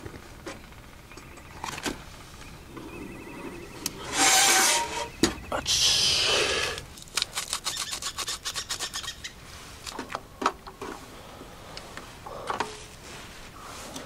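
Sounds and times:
hissy rush: 0:04.0 - 0:06.9.

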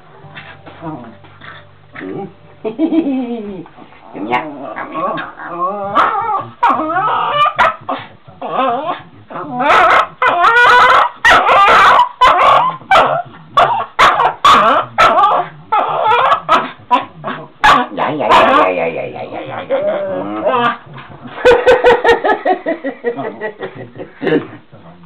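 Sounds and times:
dog yipping and whining: 0:04.8 - 0:18.6.

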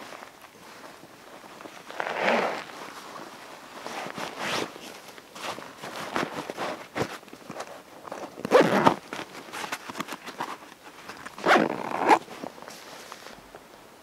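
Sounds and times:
fabric handling rustle: 0:00.0 - 0:14.0
zipper rasping: 0:01.9 - 0:02.7, 0:06.1 - 0:10.6, 0:11.4 - 0:12.3.

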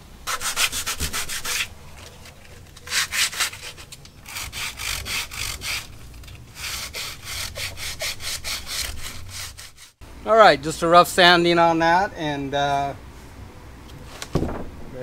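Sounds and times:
hand sanding wood: 0:00.3 - 0:01.7, 0:02.8 - 0:10.0.

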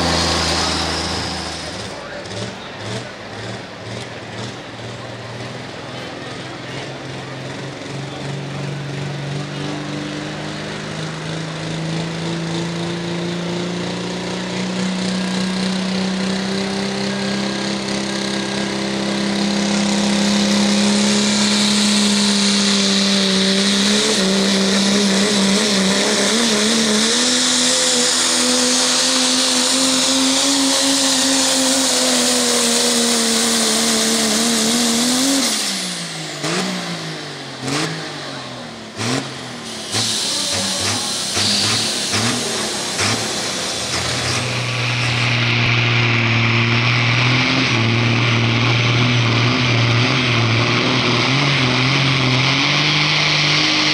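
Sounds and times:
diesel truck engine under load: 0:00.0 - 0:53.9.

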